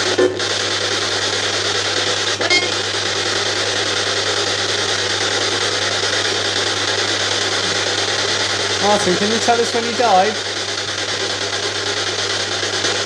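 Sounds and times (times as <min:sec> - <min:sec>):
loud static hiss: 0:00.0 - 0:13.0
radio fragment: 0:02.2 - 0:03.0, 0:06.5 - 0:11.2.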